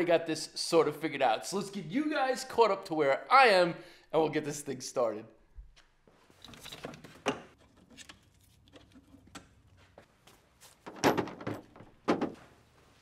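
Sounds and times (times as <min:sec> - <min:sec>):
tools and metal clattering: 0:06.3 - 0:09.9, 0:10.6 - 0:12.6.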